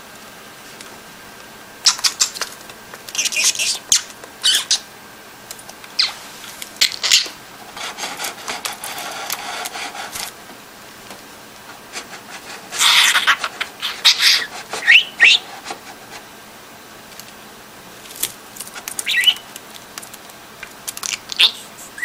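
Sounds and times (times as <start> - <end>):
budgerigar kiss sounds: 1.8 - 2.5, 3.1 - 4.8, 12.8 - 15.4
budgerigar chattering: 3.2 - 4.8, 12.8 - 15.4, 19.0 - 19.5.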